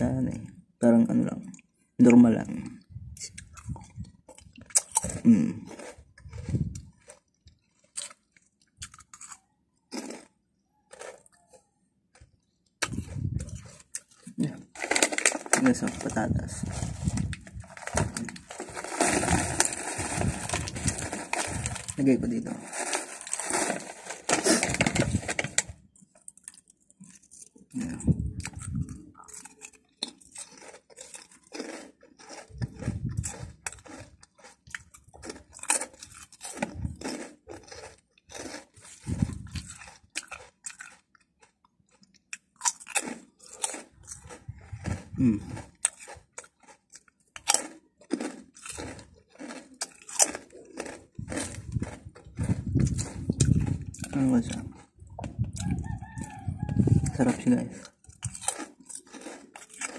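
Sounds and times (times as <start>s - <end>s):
chips crunched and chewed: 1.6s - 59.9s
snack bag rustling: 10.9s - 11.5s, 12.2s - 27.6s, 29.2s - 41.5s, 42.7s - 54.9s, 57.3s - 59.9s.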